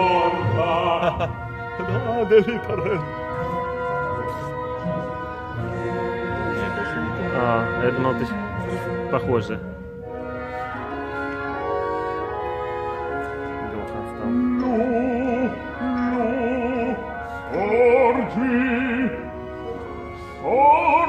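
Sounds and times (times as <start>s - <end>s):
orchestral chords: 0.0s - 21.0s
opera singer with vibrato: 14.2s - 19.7s, 20.4s - 21.0s.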